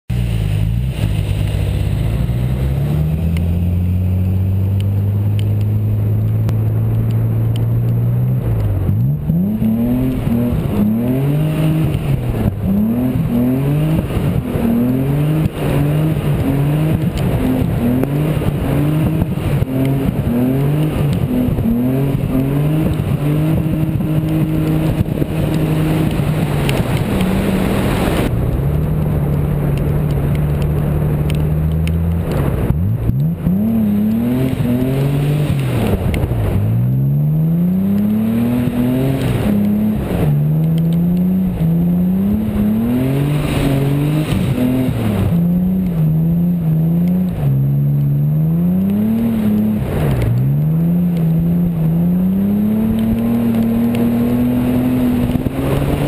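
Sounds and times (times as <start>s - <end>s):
car engine revving: 0.1s - 56.0s.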